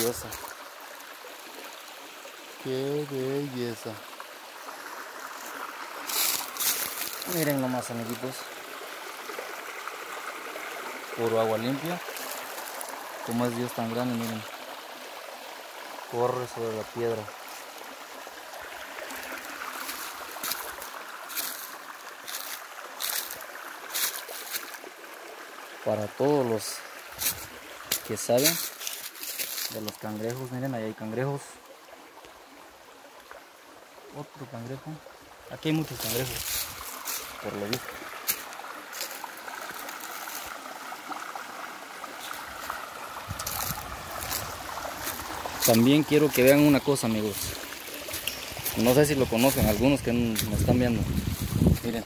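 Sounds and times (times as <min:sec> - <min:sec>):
footsteps on dry leaves: 0:00.0 - 0:00.6, 0:05.2 - 0:08.1, 0:11.6 - 0:13.3, 0:18.8 - 0:24.8, 0:27.1 - 0:30.4, 0:35.8 - 0:40.6, 0:42.2 - 0:52.0
creek trickling over rock: 0:00.0 - 0:52.0.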